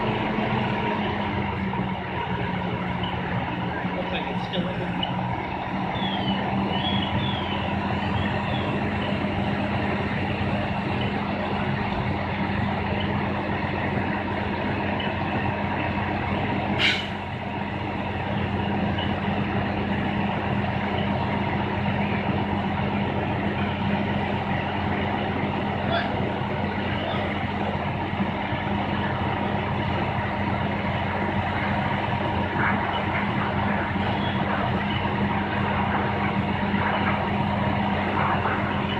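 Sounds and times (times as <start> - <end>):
diesel engine and pump humming: 0.0 - 38.9
sharp hiss: 16.8 - 17.2.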